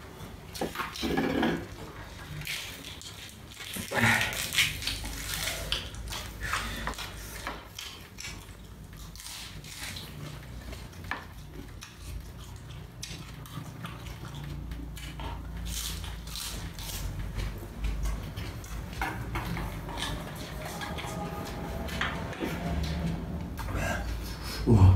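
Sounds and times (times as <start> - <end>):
person chewing food: 0.3 - 24.4
low steady hum: 10.2 - 24.9.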